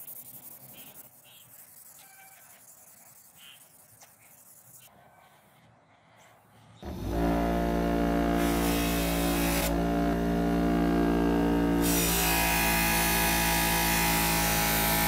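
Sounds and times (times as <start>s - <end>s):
bench grinder motor humming: 6.8s - 15.0s.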